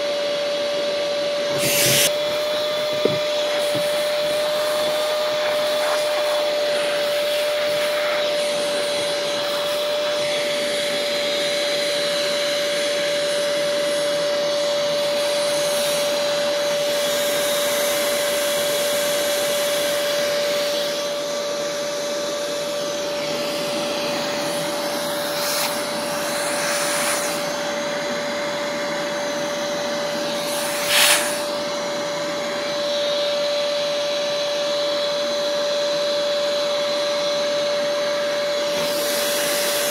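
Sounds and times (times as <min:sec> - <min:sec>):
shop vacuum running: 0:00.0 - 0:39.9.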